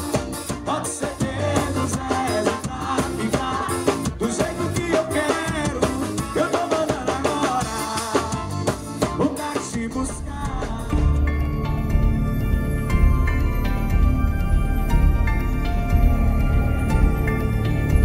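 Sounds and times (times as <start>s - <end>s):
accordion: 0.0s - 10.5s
bass: 0.0s - 18.0s
drum kit: 0.0s - 18.0s
man singing: 0.6s - 11.4s.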